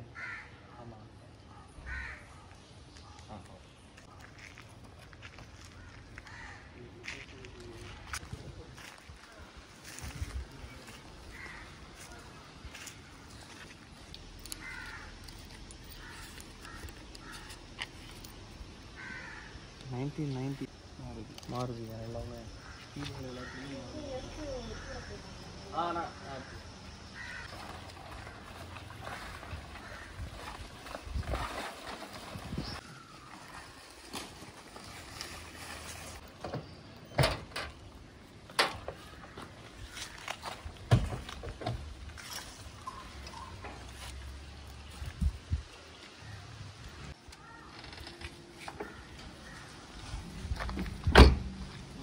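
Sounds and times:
crows cawing: 0:00.1 - 0:00.7, 0:01.8 - 0:02.4, 0:05.2 - 0:07.2, 0:11.2 - 0:12.8, 0:14.4 - 0:17.9, 0:18.9 - 0:19.8, 0:22.5 - 0:25.3, 0:26.1 - 0:31.0, 0:38.9 - 0:40.3, 0:48.8 - 0:50.0.

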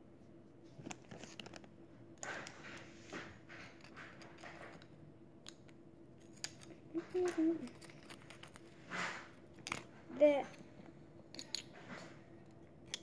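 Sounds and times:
rustling scrapes: 0:07.1 - 0:10.8.

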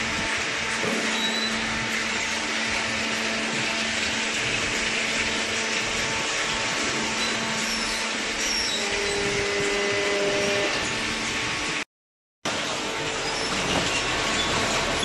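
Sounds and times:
machinery whirring: 0:00.1 - 0:11.8.

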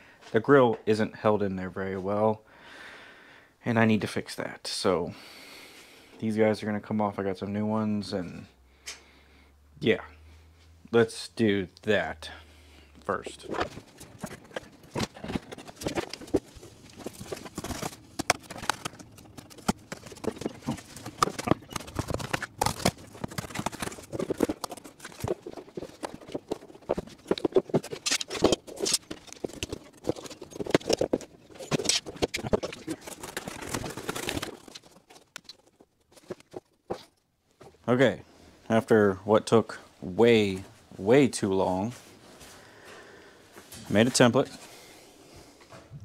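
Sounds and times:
cardboard crackling and scraping: 0:13.1 - 0:37.2.

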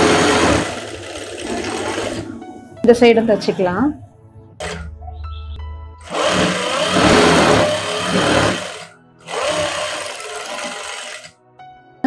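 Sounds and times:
sewing machine stitching: 0:00.0 - 0:02.2, 0:04.6 - 0:04.8, 0:06.1 - 0:11.3.

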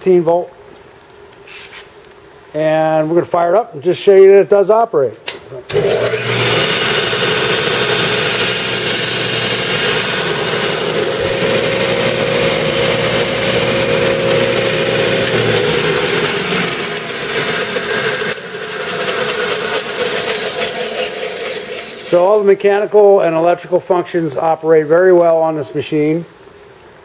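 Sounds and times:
sander motor hum: 0:05.7 - 0:23.4
high whine falling in pitch: 0:07.0 - 0:25.0.

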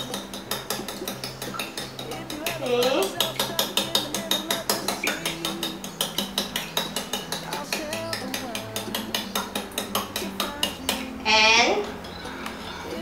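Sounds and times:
fork beating eggs in bowl: 0:00.0 - 0:13.0.

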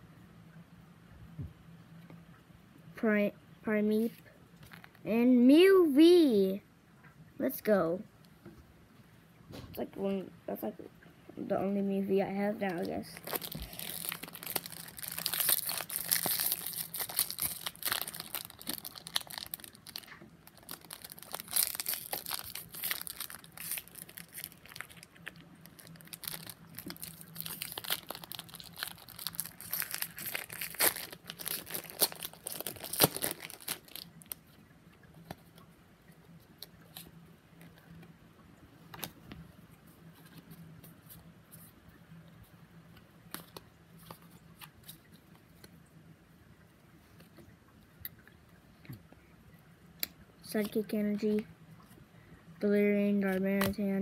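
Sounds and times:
foil wrappers crinkling and tearing: 0:12.6 - 0:34.4.

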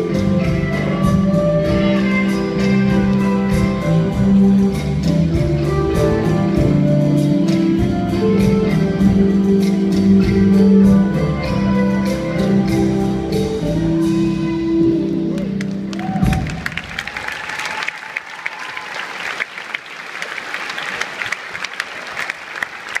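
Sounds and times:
audience applause: 0:15.4 - 0:23.0.

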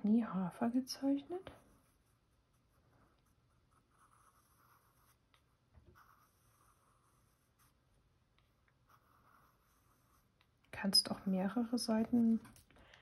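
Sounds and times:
pencil scratching on paper: 0:01.1 - 0:12.7.

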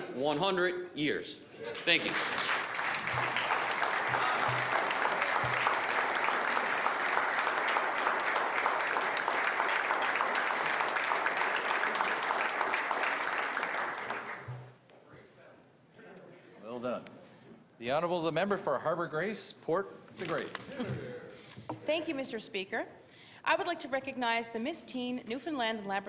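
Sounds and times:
audience applause: 0:01.7 - 0:14.8.

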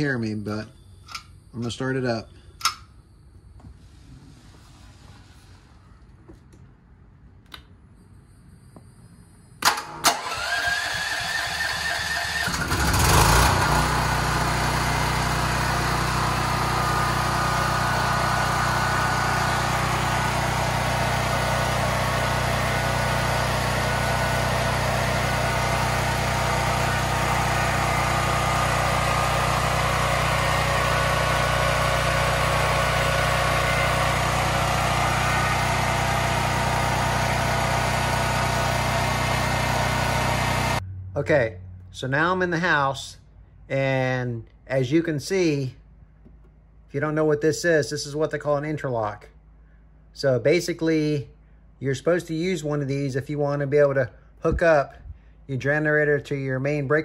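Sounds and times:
generator engine cranking and running: 0:09.6 - 0:40.9.

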